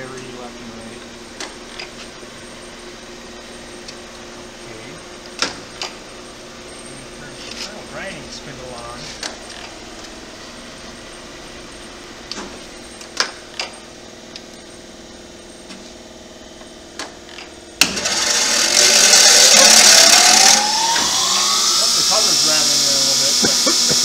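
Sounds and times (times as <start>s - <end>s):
grinding spindle hiss and whine: 0.0s - 24.0s
grinder humming: 17.8s - 24.0s.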